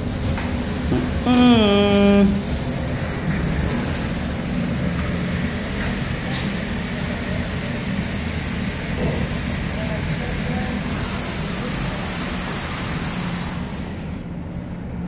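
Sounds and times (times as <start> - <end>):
engine rumbling with hiss: 3.0 - 14.8.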